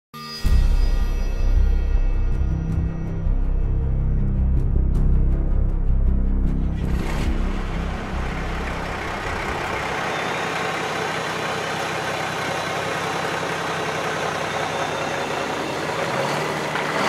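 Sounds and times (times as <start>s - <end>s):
truck engine running: 5.2s - 17.0s.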